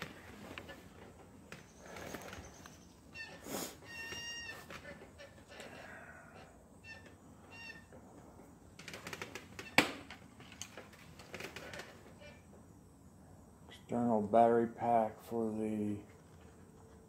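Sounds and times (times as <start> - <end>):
high squeaky chirps: 1.6 - 6.0, 6.8 - 8.0.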